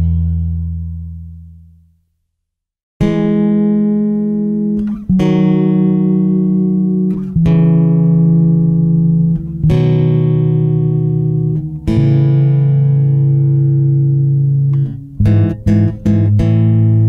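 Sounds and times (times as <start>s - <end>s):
sustained instrumental chords: 3.0s - 17.0s.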